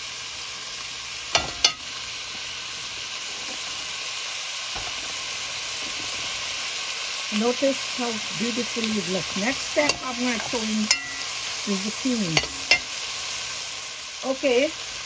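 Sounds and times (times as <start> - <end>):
food sizzling in hot oil: 0.0 - 15.0
metal spoon clanking on pot: 1.3 - 1.8, 9.8 - 11.3, 12.4 - 12.9.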